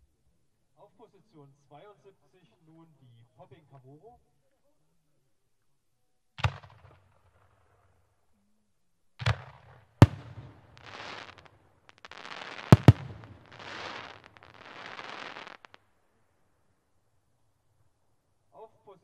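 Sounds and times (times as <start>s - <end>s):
firework bangs: 9.2s - 15.8s
crackling firework bursts: 9.2s - 16.2s.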